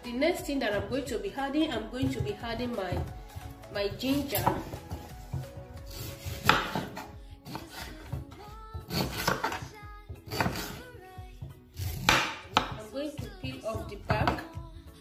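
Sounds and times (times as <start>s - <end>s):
knife cutting on wooden board: 4.0s - 8.2s, 8.9s - 9.7s, 10.3s - 10.8s, 11.7s - 12.8s.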